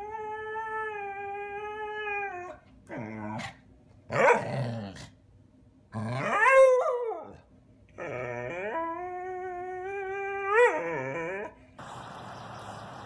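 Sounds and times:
dog howling and grumbling: 6.0s - 7.4s, 8.0s - 11.6s.

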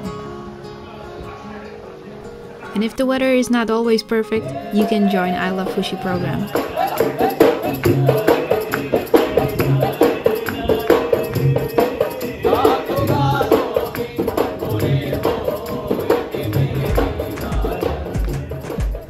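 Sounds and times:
men singing folk song: 4.4s - 19.0s
rhythmic hand-clapping: 4.7s - 19.0s
low drum beat: 5.5s - 19.0s.

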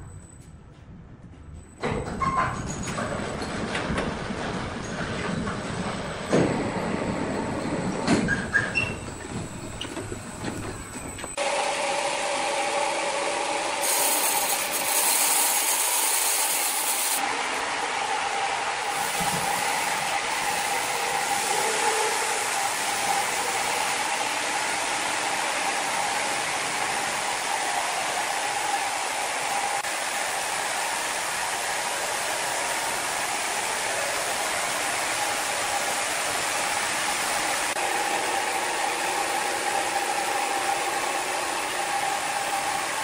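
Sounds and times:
band sawmill humming and whining: 9.2s - 43.0s.

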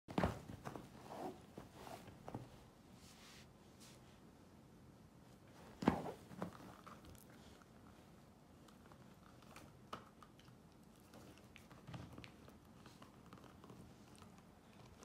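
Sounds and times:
puppy gnawing a chew: 8.6s - 15.0s.

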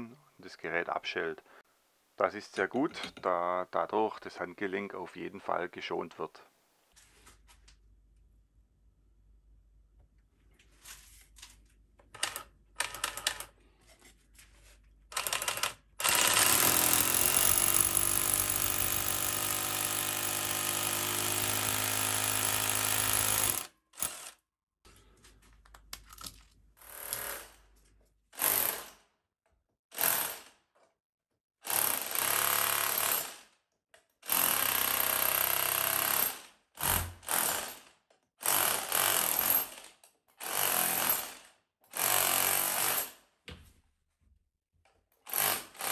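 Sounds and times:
rotary hammer drilling: 15.1s - 24.4s, 26.8s - 27.6s.

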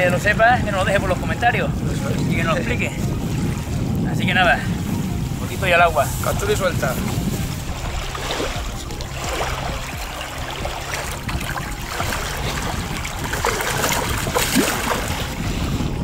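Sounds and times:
shallow water sloshing: 0.0s - 16.0s
fish splashing: 7.4s - 15.6s.

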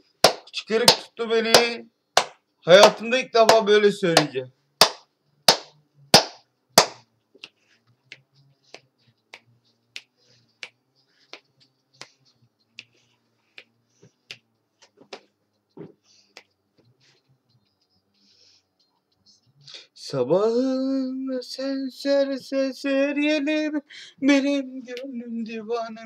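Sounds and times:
hand claps: 0.2s - 12.2s.

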